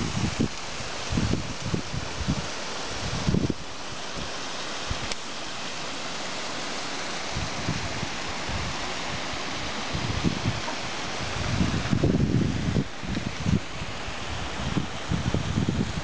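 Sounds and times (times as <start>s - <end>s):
wind buffeting microphone: 0.0s - 5.7s, 7.2s - 16.0s
water rushing down stone wall: 0.0s - 16.0s.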